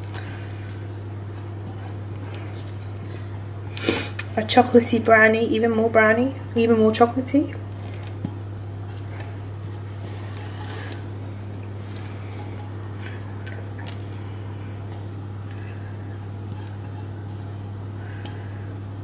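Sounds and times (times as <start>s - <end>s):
spatula scraping a bowl: 0.0s - 3.6s, 7.9s - 11.2s, 14.9s - 19.0s
steady low hum: 0.0s - 19.0s.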